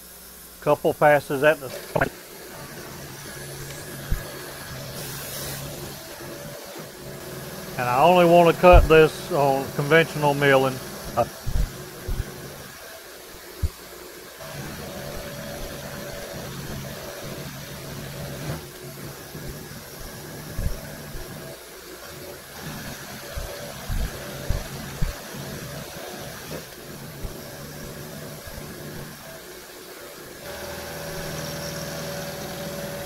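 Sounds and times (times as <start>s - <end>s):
milling machine humming: 0.1s - 33.0s
short low thumps: 23.4s - 25.2s.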